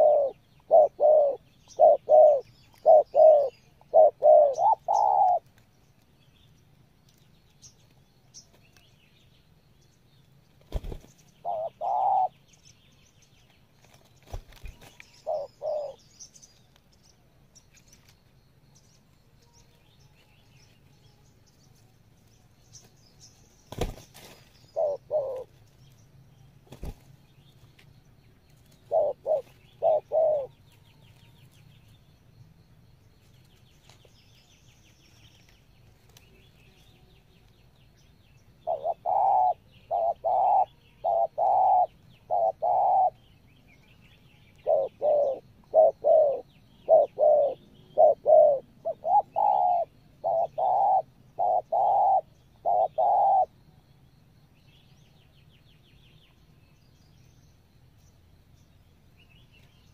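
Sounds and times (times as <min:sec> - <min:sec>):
doves cooing: 0:00.0 - 0:05.5, 0:10.7 - 0:12.4, 0:14.3 - 0:16.0, 0:23.8 - 0:25.6, 0:28.8 - 0:30.6, 0:38.6 - 0:43.2, 0:44.6 - 0:53.6.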